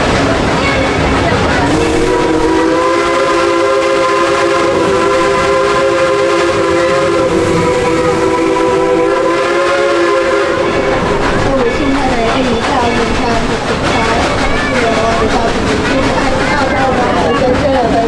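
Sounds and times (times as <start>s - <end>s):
train running rumble: 0.0s - 18.0s
steam locomotive chime whistle: 1.7s - 11.8s.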